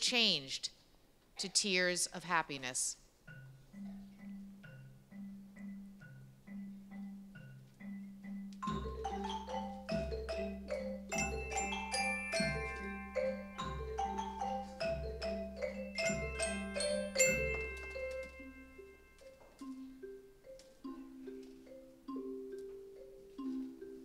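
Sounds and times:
xylophones and glockenspiels playing: 3.3 - 24.0
high bell tones: 8.6 - 21.0.

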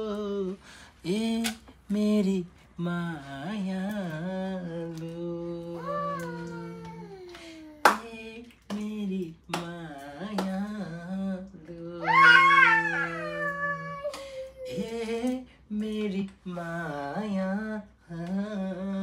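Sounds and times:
person humming: 5.0 - 8.0, 11.8 - 15.4
higher voice: 12.0 - 14.8.

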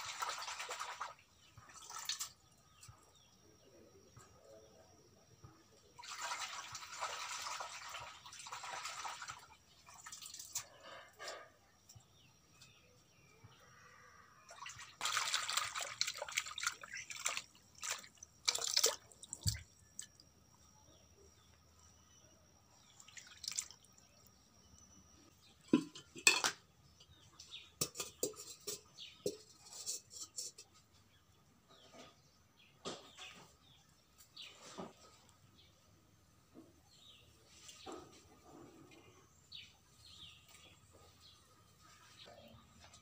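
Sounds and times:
hands washing greens in water: 14.5 - 20.2, 23.0 - 23.8.

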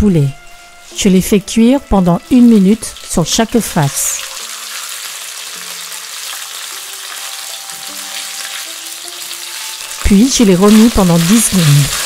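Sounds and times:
chicken sizzling in hot oil: 0.5 - 12.0.

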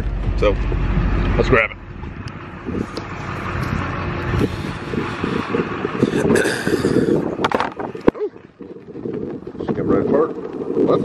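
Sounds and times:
wind rumbling on microphone: 0.0 - 11.0.

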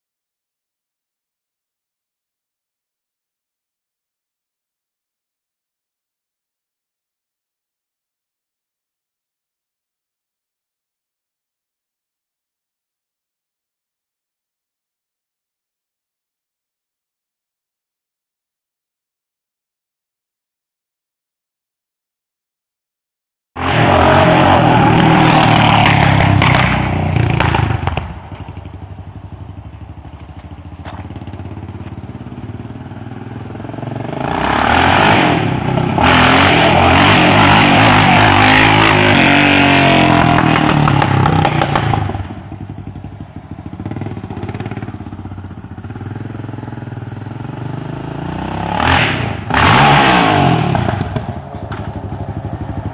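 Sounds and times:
quad engine revving: 23.6 - 28.7, 29.6 - 43.1, 43.7 - 52.9.

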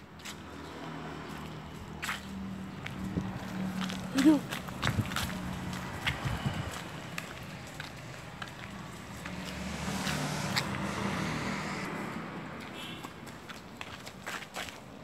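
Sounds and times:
child running footsteps on pavement: 0.0 - 15.0
vehicle passing by: 0.3 - 13.4.

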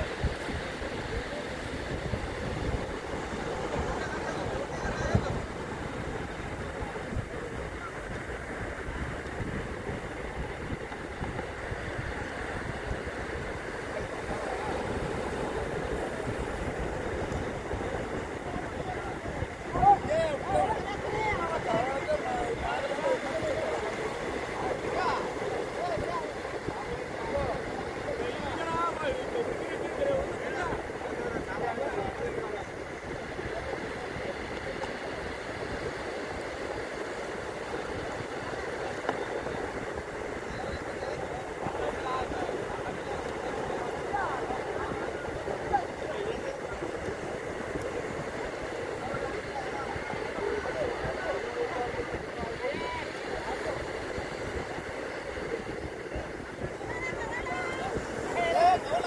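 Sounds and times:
breaking surf: 0.0 - 59.0
wind buffeting microphone: 0.0 - 59.0.

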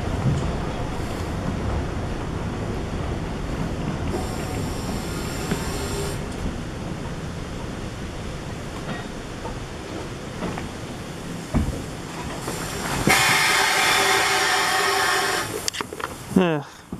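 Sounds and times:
carriage rumble: 0.0 - 16.3
steam locomotive whistle: 13.0 - 15.5.

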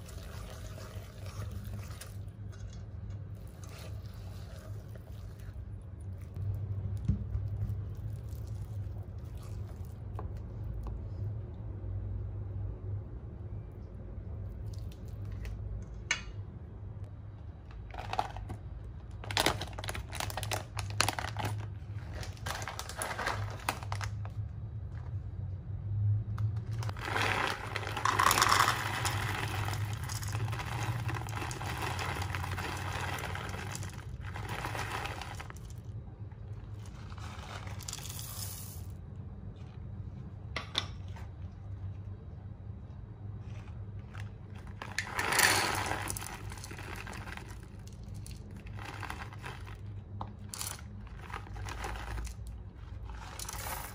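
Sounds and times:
crinkling and rustling handling noise: 17.6 - 25.4, 26.4 - 53.9.

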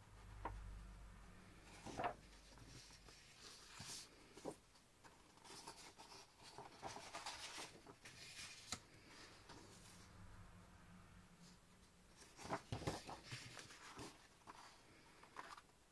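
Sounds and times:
paper rustling and sliding: 1.5 - 10.1, 12.1 - 15.7.

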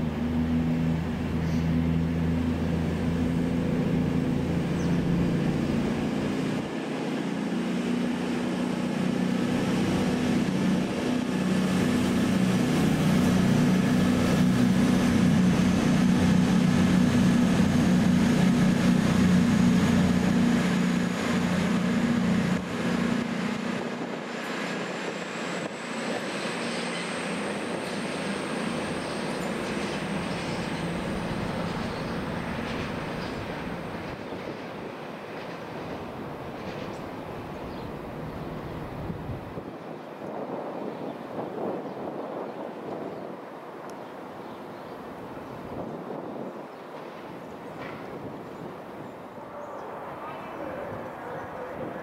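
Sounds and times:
diesel train engine drone: 0.0 - 52.0.

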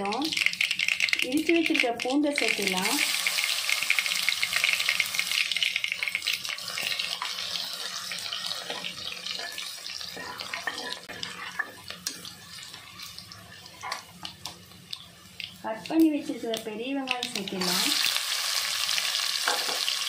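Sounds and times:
garlic sizzling in hot oil: 0.0 - 20.0
spoon stirring with crackles: 3.9 - 18.1.

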